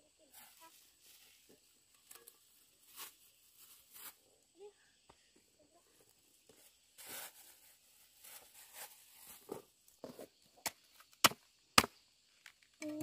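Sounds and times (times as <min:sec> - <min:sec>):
plastic bag rustling: 0:07.0 - 0:09.7.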